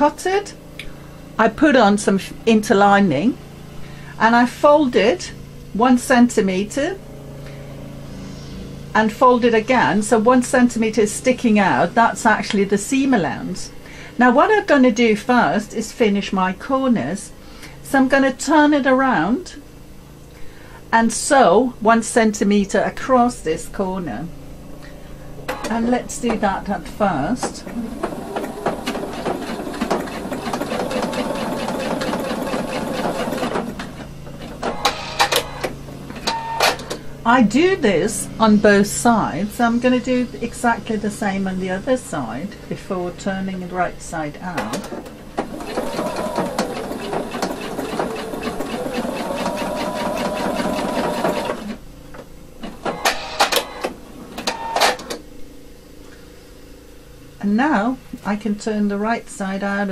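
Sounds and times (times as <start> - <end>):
sewing machine stitching: 27.6 - 36.9, 44.6 - 51.8.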